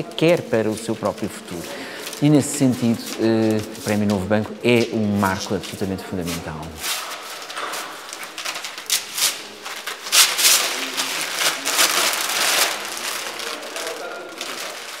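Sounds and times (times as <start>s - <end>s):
transfer sheet rustling and crinkling: 0.0s - 15.0s.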